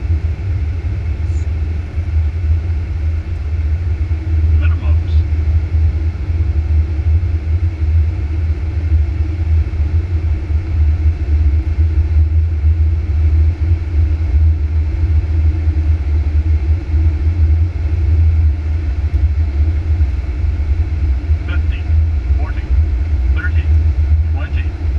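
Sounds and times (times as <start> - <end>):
aircraft cockpit rumble: 0.0 - 24.9.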